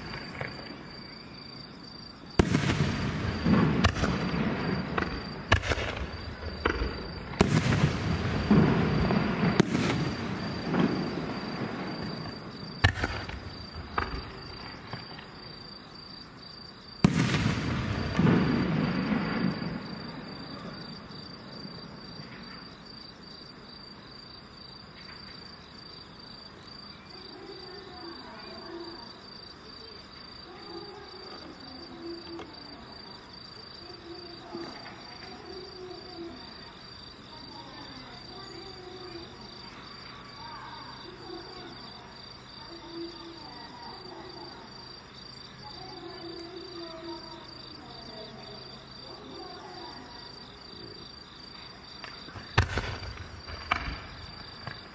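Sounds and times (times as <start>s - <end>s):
night insects trilling: 0.0s - 54.9s
firework burst: 2.4s - 15.3s, 17.0s - 20.9s, 52.0s - 54.9s.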